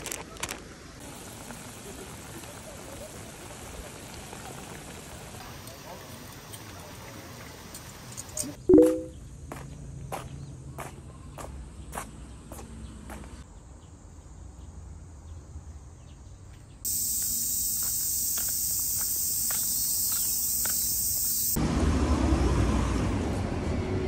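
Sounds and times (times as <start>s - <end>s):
footsteps on paving: 9.5s - 13.4s, 16.9s - 21.6s
cicadas buzzing: 16.8s - 21.6s.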